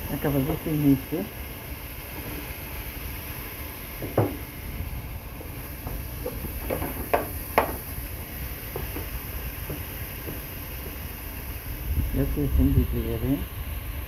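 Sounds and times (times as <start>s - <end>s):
meat and onion sizzling: 0.0s - 14.0s
wooden spoon knocking on pot: 4.0s - 4.4s, 5.9s - 7.9s, 8.7s - 11.0s.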